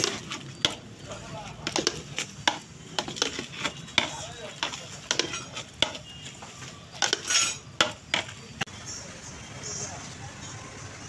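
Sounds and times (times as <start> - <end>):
metal spatula knocking and scraping pot: 0.0 - 8.5.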